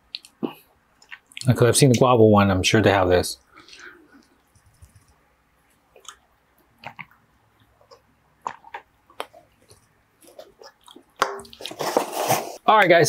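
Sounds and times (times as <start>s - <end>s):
person gulping a drink: 6.8s - 11.8s.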